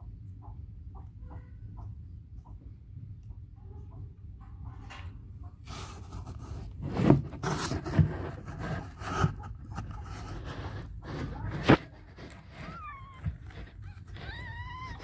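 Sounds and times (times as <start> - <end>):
rustling and scraping: 4.4 - 15.0.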